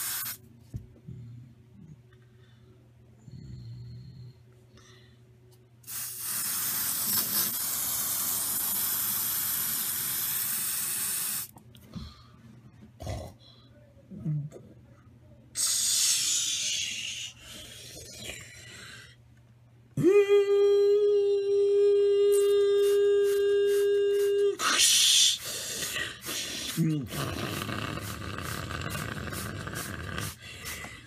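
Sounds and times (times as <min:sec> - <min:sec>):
person making hissing sounds: 0:00.0 - 0:00.4, 0:05.8 - 0:11.5, 0:15.6 - 0:18.5, 0:22.3 - 0:31.0
steady even-pitched hum: 0:00.0 - 0:31.0.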